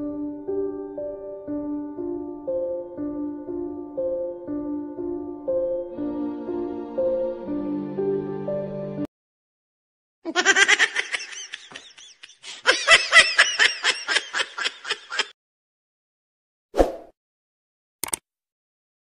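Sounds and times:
person laughing: 0:10.3 - 0:15.4
brief click: 0:18.0 - 0:18.2.

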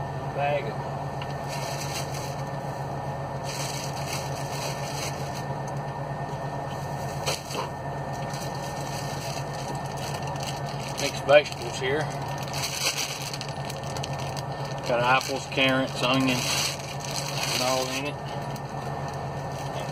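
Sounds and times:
steady low hum: 0:00.0 - 0:19.9
plastic bag rustling: 0:01.4 - 0:02.4, 0:03.4 - 0:05.5, 0:08.2 - 0:19.9.

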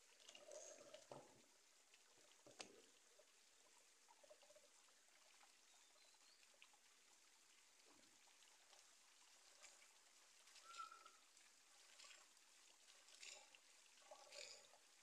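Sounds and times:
water trickling into metal basin: 0:00.0 - 0:01.8, 0:13.1 - 0:15.0.

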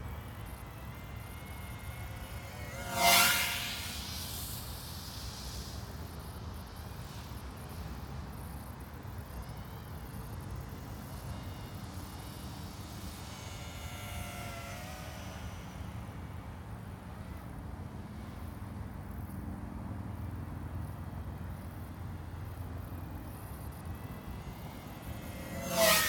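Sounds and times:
electric motors whining: 0:00.0 - 0:18.5, 0:21.0 - 0:26.0.

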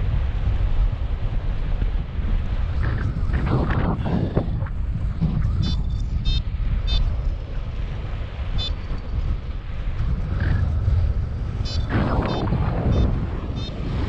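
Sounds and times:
wind buffeting microphone: 0:00.0 - 0:14.0
short high-pitched beeps: 0:05.6 - 0:07.0.

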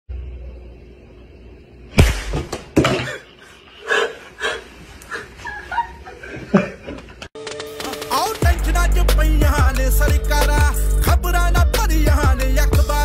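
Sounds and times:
woman laughing hard: 0:03.9 - 0:07.3.

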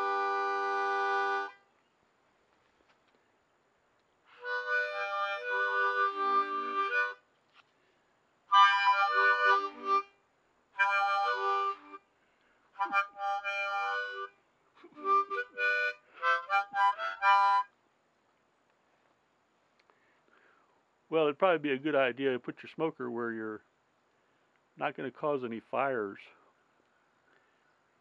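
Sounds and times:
harmonica playing chords: 0:00.0 - 0:01.6, 0:04.3 - 0:07.2, 0:08.5 - 0:10.2, 0:10.8 - 0:12.1, 0:12.7 - 0:17.8.

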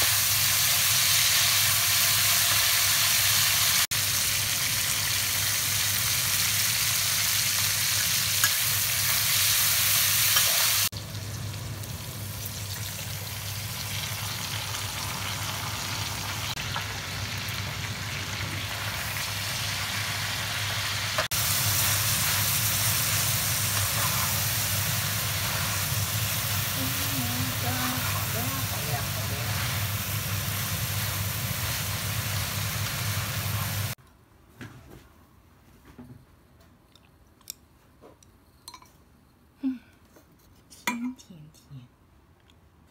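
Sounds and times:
food sizzling in a wok: 0:00.0 - 0:34.0
spatula stirring in a wok: 0:21.4 - 0:33.9.

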